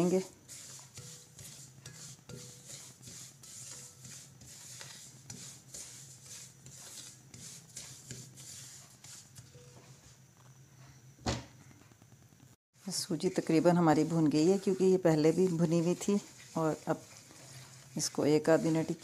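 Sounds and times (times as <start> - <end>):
spatula scraping in a pan: 0.0 - 10.2, 12.8 - 19.0.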